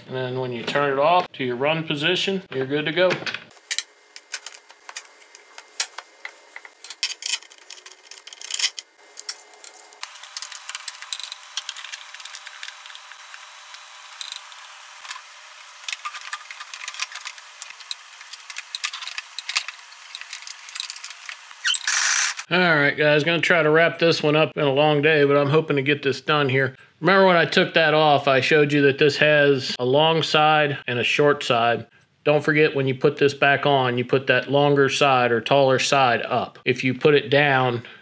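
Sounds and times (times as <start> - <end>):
hand tools and parts clinking: 2.6 - 22.5.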